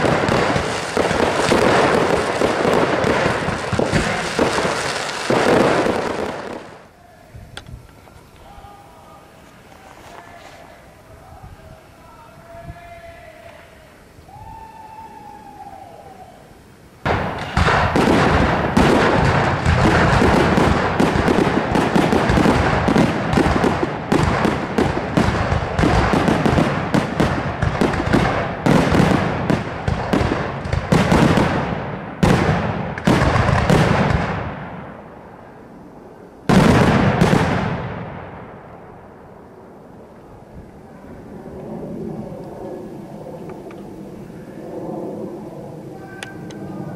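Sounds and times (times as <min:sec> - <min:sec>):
fireworks bangs and crackling: 0:00.0 - 0:06.9, 0:17.0 - 0:44.2.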